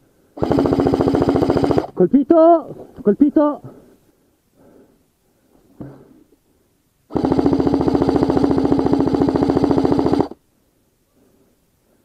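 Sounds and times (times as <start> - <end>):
airsoft gun full-auto burst: 0.4 - 2.0, 7.1 - 10.4.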